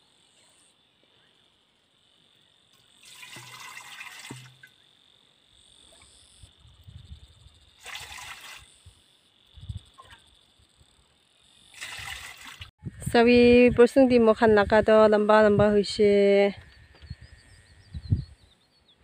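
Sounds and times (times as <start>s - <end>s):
water pouring into metal pot: 3.0s - 4.7s.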